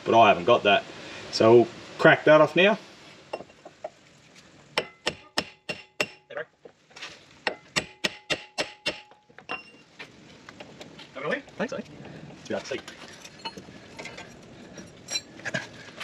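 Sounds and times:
hammer striking metal: 0:04.8 - 0:06.2, 0:07.5 - 0:09.8.

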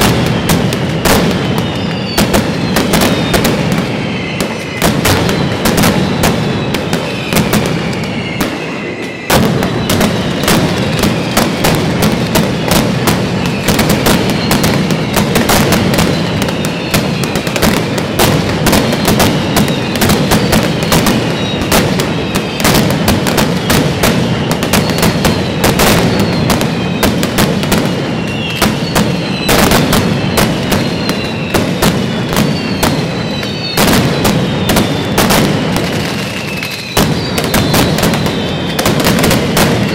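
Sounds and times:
falling whistles: 0:00.0 - 0:39.9
firecrackers banging: 0:00.0 - 0:39.9.

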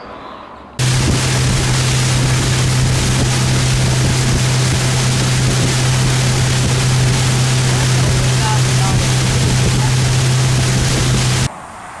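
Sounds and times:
outboard motor droning: 0:00.8 - 0:11.5
rushing boat wake: 0:00.8 - 0:11.5
wind on microphone: 0:00.8 - 0:11.5.

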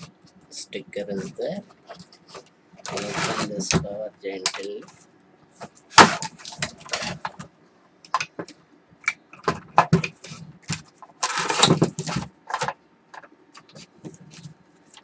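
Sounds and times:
plastic scraping rattle: 0:01.8 - 0:03.8, 0:05.7 - 0:07.5, 0:09.4 - 0:15.0.

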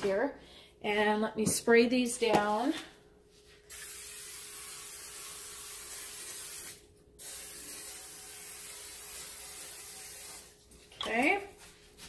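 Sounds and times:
aerosol spray hissing: 0:03.7 - 0:10.5.

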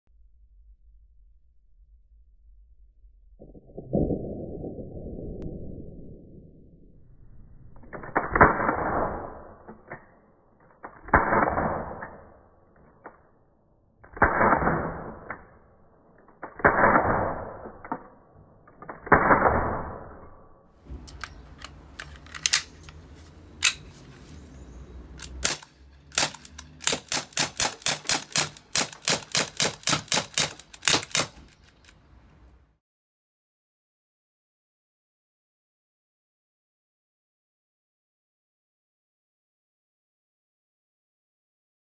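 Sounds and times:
air pistol shots: 0:25.2 - 0:31.6.

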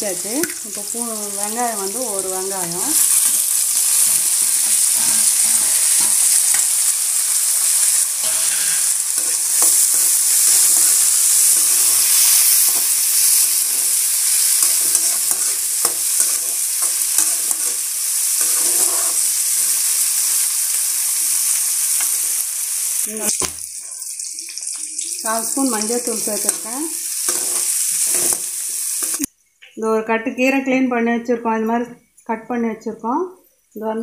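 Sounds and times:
onions sizzling in hot oil: 0:00.0 - 0:29.3
metal ladle scraping pan: 0:03.0 - 0:06.8, 0:07.6 - 0:19.4, 0:26.4 - 0:28.5.

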